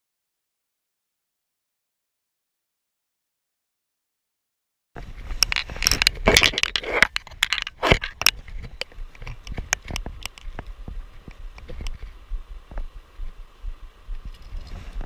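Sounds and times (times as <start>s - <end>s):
knocks and rustling: 5.0s - 12.9s.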